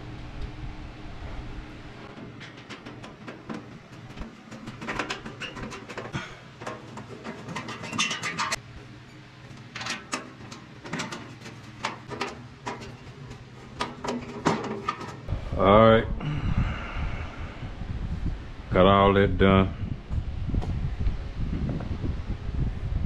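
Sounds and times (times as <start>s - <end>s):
steady low hum: 0.0s - 23.0s
metallic clicks of screws and panels: 2.2s - 8.6s, 9.6s - 15.3s.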